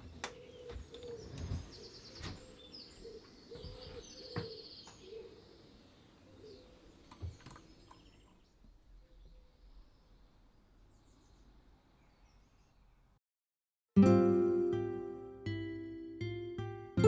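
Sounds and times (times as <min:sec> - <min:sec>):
small birds chirping: 0:00.0 - 0:13.2.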